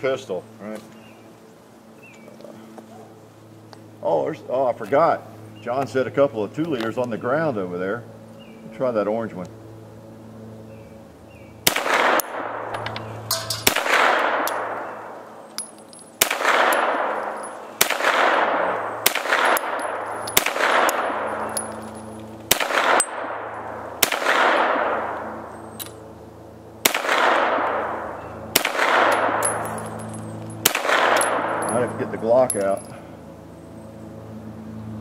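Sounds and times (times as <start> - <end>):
pistol shots echoing: 11.6 - 15.2, 16.2 - 25.5, 26.8 - 32.1.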